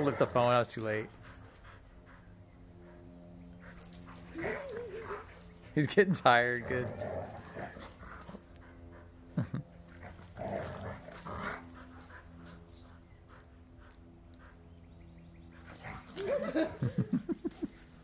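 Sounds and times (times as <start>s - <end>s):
dogs growling and whining: 2.8s - 5.8s, 6.4s - 12.7s, 15.5s - 18.0s
dogs growl-barking: 3.7s - 8.8s, 9.8s - 12.6s, 15.6s - 17.6s.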